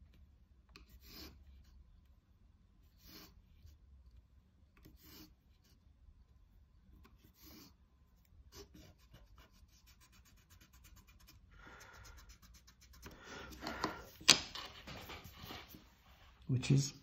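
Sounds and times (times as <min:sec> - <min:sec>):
rubbing and handling: 0:00.0 - 0:16.5
pencil scratching on paper: 0:00.7 - 0:02.0, 0:02.8 - 0:03.9, 0:04.8 - 0:05.9, 0:06.9 - 0:16.1.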